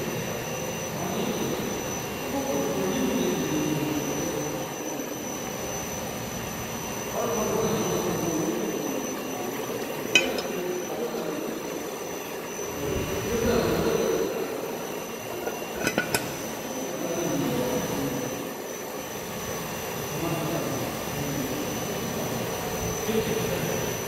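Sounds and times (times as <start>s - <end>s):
constant high whine: 0.0s - 24.0s
machinery hum: 0.0s - 24.0s
sharp metallic clink: 10.2s - 10.7s.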